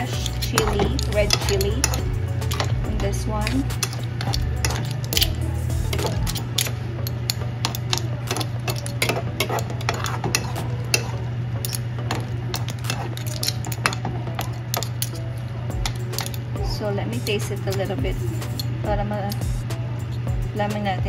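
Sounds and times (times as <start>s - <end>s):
spoon clinking shells in a pan: 0.0s - 16.6s
steady low hum: 0.0s - 21.0s.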